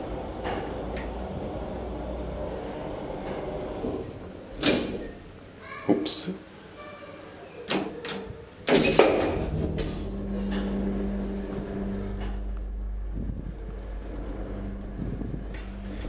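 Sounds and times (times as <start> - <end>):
hydraulic machinery humming: 0.0 - 5.5, 9.0 - 16.0
elevator clunk: 8.7 - 16.0.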